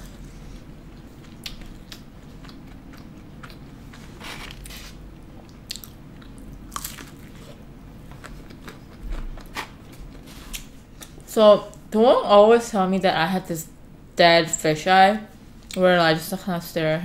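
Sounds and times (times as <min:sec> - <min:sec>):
person chewing crispy food: 0:00.0 - 0:11.2.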